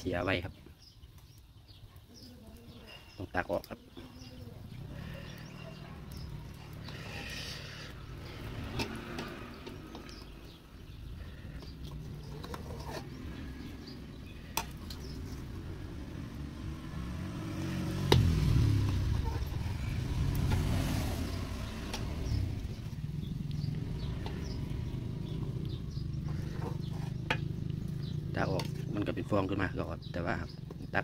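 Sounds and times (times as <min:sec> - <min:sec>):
broth boiling in a pot: 0:00.0 - 0:18.1.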